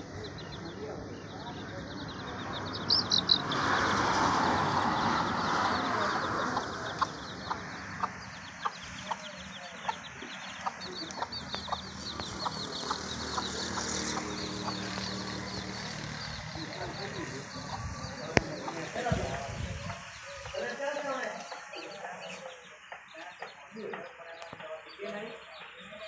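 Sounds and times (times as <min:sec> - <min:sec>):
rush of noise: 0:00.0 - 0:21.8
chicks peeping: 0:00.0 - 0:26.0
hen clucking: 0:06.0 - 0:26.0.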